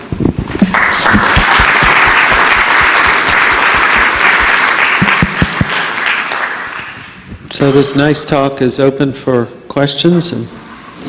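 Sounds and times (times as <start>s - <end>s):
audience applauding: 0.6s - 7.1s.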